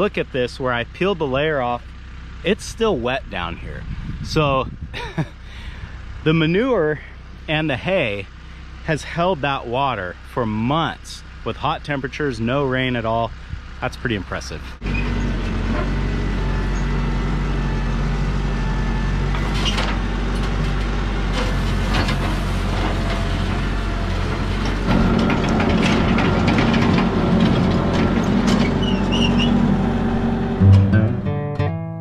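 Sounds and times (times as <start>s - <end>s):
tractor diesel engine running: 0.0s - 31.4s
scraper clanks and rattles: 24.6s - 28.8s.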